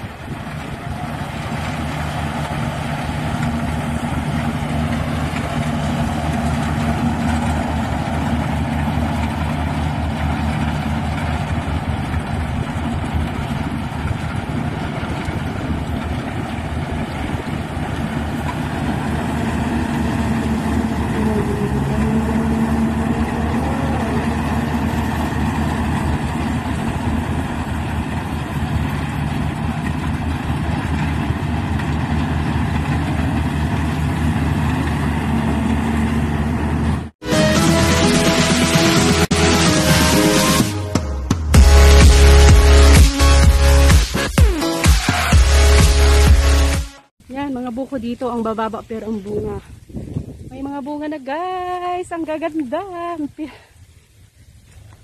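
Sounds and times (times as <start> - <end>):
combine harvester engine drone: 0.0 - 47.1.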